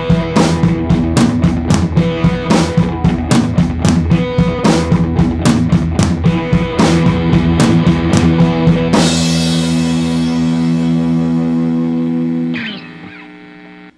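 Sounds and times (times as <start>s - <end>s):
rock music: 0.0s - 13.9s
guitar chord ringing: 6.3s - 13.9s.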